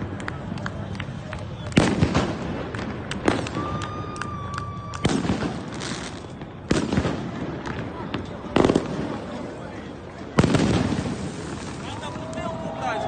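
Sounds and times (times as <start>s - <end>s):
crackling pops: 0.0s - 9.4s
fireworks bangs: 0.0s - 13.0s
firework whistle: 3.2s - 9.4s.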